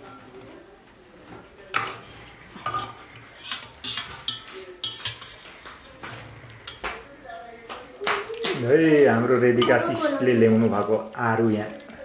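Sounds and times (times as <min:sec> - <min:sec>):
spoon scraping metal pots: 0:01.8 - 0:07.1, 0:09.4 - 0:10.2.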